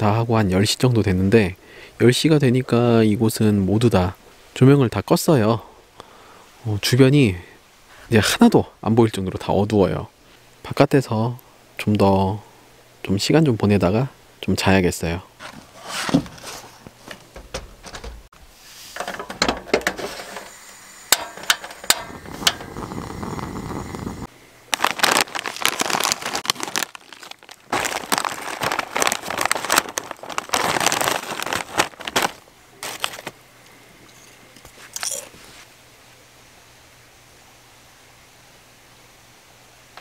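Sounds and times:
crinkling and rustling: 15.4s - 18.3s, 18.9s - 20.5s, 24.7s - 33.4s.

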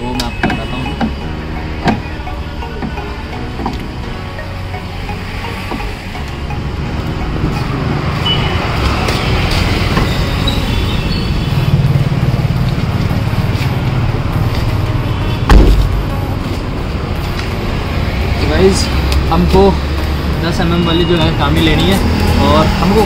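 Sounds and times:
low vehicle rumble: 1.2s - 20.6s
heavy thump: 15.5s - 16.1s.

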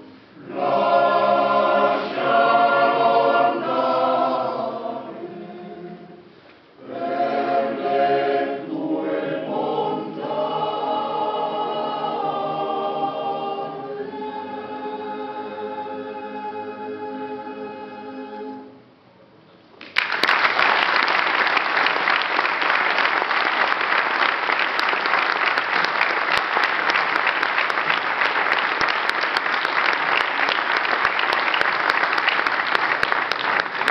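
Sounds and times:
male choir singing: 0.4s - 18.7s
audience applause: 19.8s - 33.9s.

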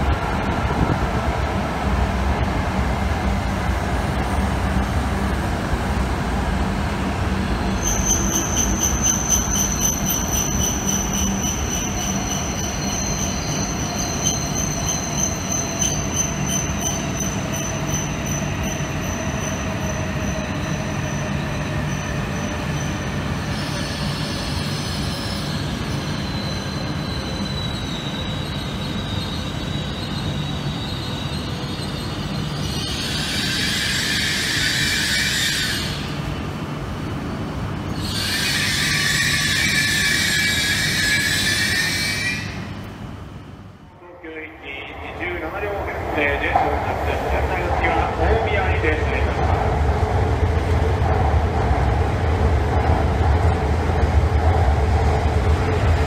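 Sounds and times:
high brake squeal: 7.7s - 36.1s, 38.0s - 42.8s.

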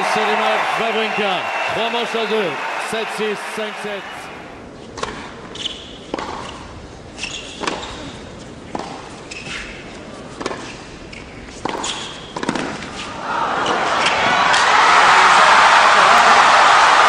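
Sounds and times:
tennis ball hit by rackets: 11.6s - 12.9s.

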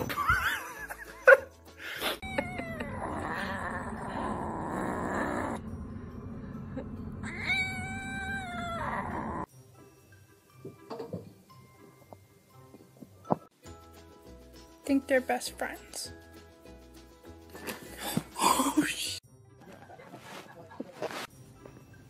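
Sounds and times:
cat yowling: 2.2s - 5.6s, 7.2s - 9.5s
cat growling while chewing: 2.6s - 5.6s, 7.2s - 9.5s
short cat cries: 7.2s - 9.4s.

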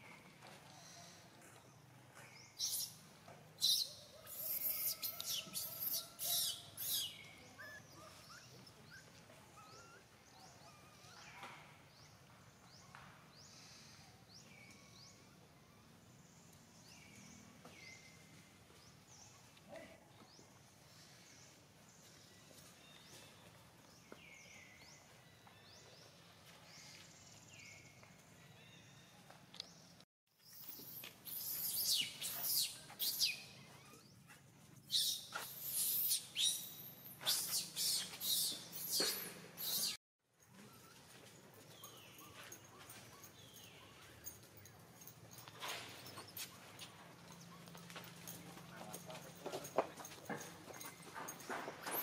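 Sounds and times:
baby monkey screaming: 3.6s - 8.4s.

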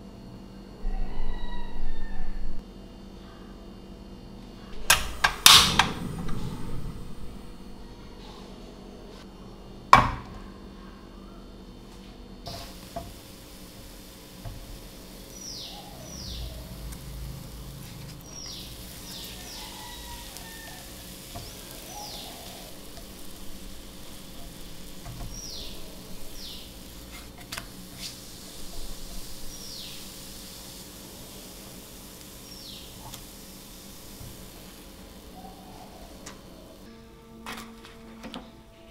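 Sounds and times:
batter sizzling in a frying pan: 12.5s - 36.9s.

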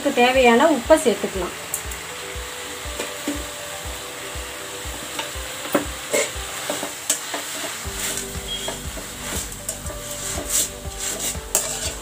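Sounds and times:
leaves sizzling in hot oil: 0.0s - 12.0s
spatula scraping metal pan: 6.1s - 12.0s.

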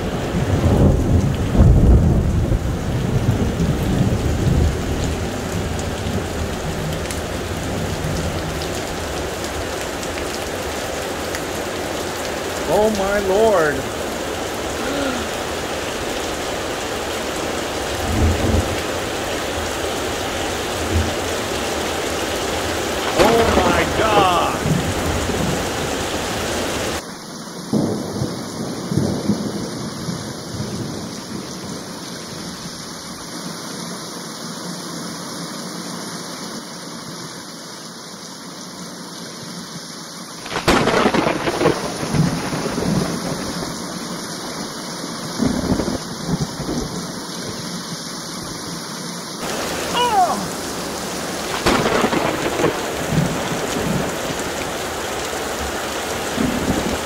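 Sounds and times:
heavy rain pouring: 0.0s - 57.0s
rolling thunder rumbles: 0.3s - 4.9s, 40.5s - 43.8s, 51.5s - 54.2s
loud thunderclap: 23.0s - 25.6s, 40.5s - 43.7s, 51.5s - 54.1s.

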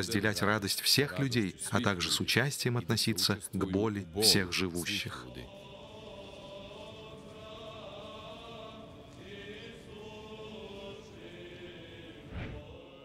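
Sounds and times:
church choir chanting: 4.3s - 13.0s.

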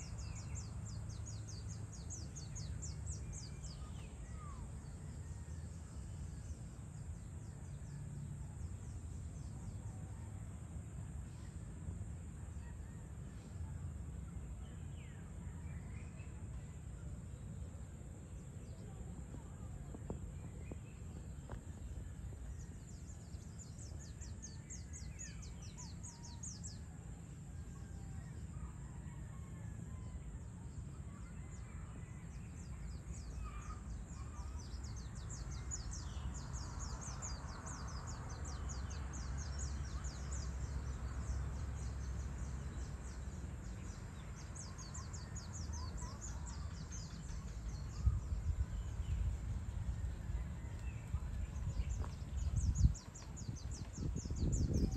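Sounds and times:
low rumble: 46.9s - 54.9s.

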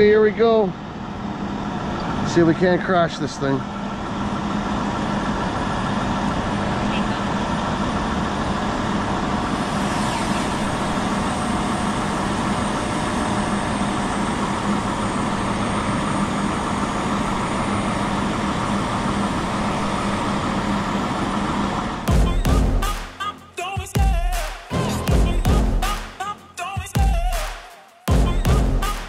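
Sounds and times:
diesel truck engine running: 0.0s - 27.4s, 28.1s - 29.0s.

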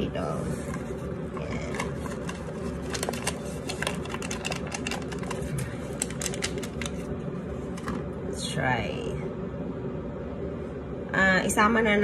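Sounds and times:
packet crinkling: 1.6s - 8.0s.

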